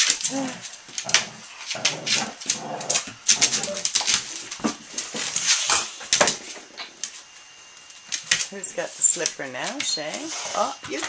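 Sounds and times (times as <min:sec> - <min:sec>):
dogs vocalizing: 0:00.2 - 0:05.9.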